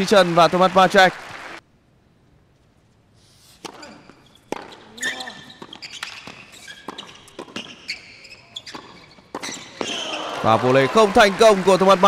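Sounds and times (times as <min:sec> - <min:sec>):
racket hitting tennis ball: 0:03.6 - 0:08.0, 0:08.6 - 0:10.2
sneakers squeaking on court: 0:03.6 - 0:10.2.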